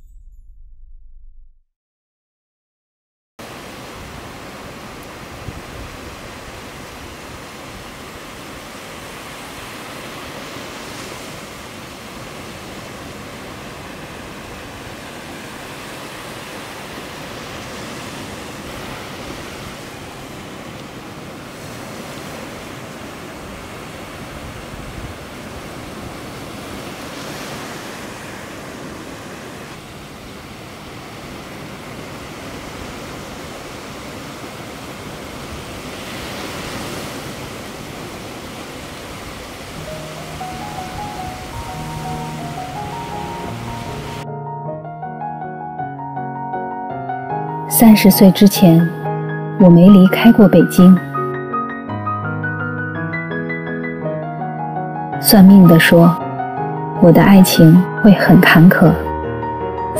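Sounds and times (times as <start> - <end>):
waves washing onto beach: 3.4 - 44.2.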